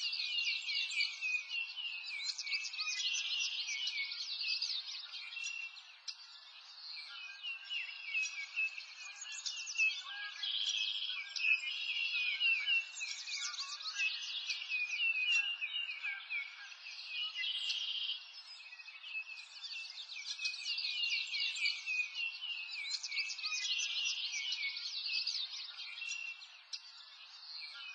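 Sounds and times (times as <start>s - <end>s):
chorus of birds chirping: 0.0s - 27.9s.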